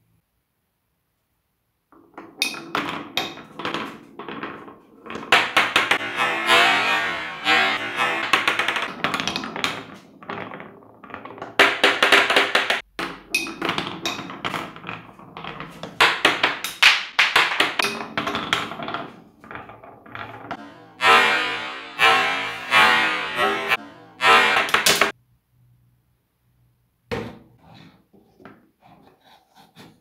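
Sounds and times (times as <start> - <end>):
marbles rolling on wooden track: 2.0 - 25.2.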